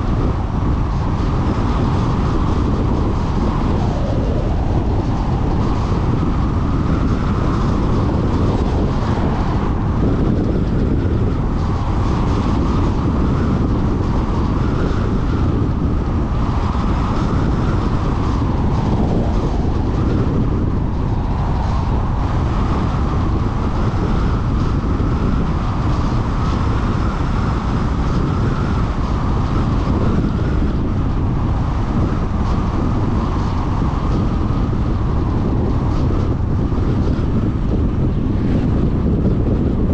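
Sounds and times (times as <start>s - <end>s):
tyre and wind noise: 0.0s - 39.9s.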